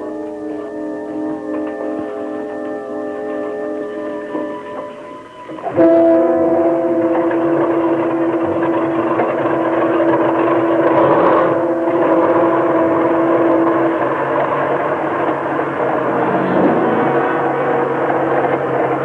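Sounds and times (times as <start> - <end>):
tank engine running: 7.8 - 19.0
sustained background music note: 15.5 - 18.0.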